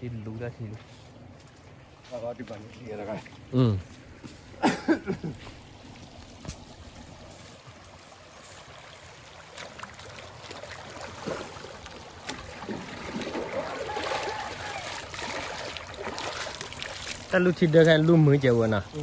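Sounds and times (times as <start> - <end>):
shallow stream running: 0.0 - 19.0
feet wading through water: 0.3 - 19.0
watering cans splashing in water: 9.3 - 18.4.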